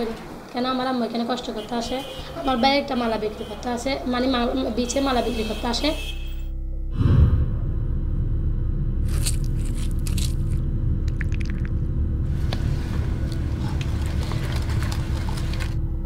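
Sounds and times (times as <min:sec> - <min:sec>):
steady low rumble: 0:06.5 - 0:16.0
wet crunching and scraping: 0:09.0 - 0:15.8.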